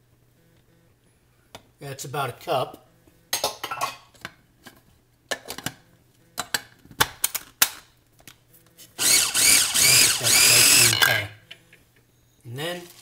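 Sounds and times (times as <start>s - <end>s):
food processor motor chopping: 9.0s - 11.1s.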